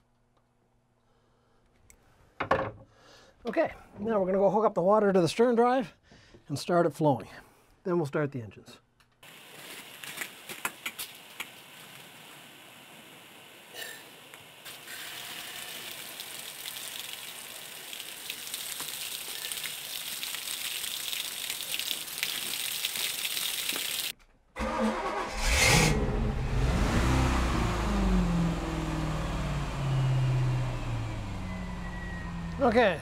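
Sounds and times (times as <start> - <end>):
hose water splashing on gravel: 9.2 - 24.1.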